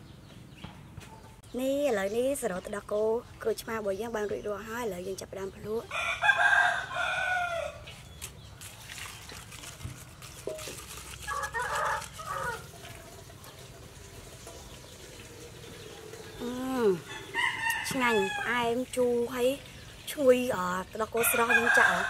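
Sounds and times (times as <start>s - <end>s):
rooster crowing: 5.9s - 7.8s, 11.3s - 12.7s, 17.0s - 18.5s, 21.2s - 22.0s.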